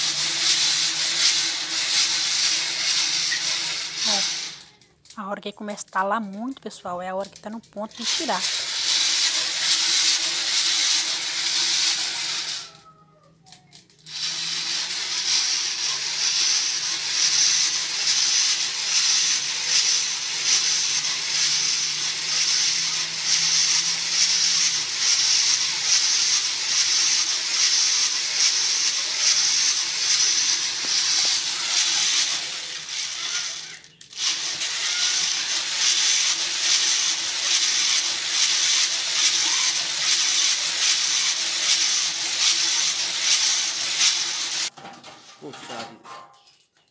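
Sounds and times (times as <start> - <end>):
coffee beans crackling in roaster: 0.0 - 45.8.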